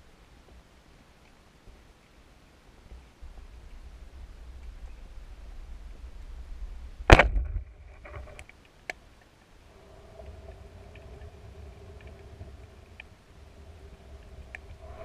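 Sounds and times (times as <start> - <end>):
faint low hum: 0.0 - 15.0
speargun shot: 7.1 - 7.5
faint clicks: 8.0 - 15.0.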